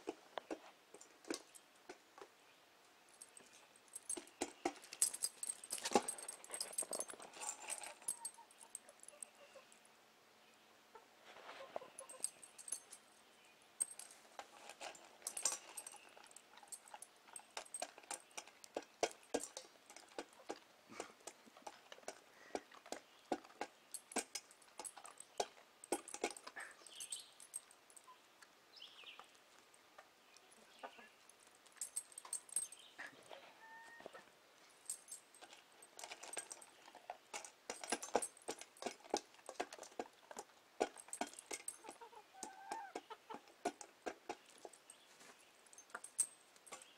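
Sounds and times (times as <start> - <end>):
chicken calls: 41.8 - 43.5.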